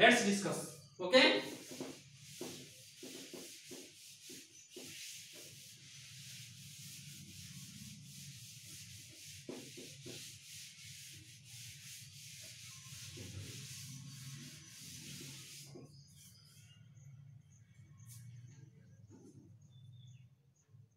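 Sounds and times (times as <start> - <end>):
duster wiping chalkboard: 1.2 - 16.8.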